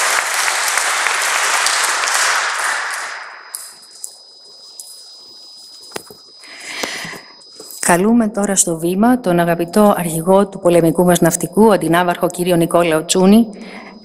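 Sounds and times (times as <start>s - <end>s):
audience applauding: 0.0s - 4.1s.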